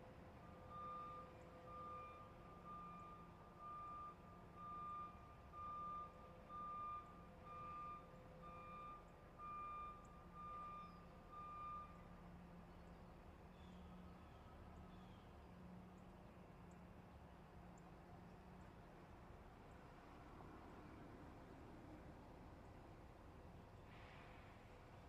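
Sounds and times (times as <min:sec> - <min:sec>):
truck reversing alarm beeps: 0:00.2 - 0:13.3.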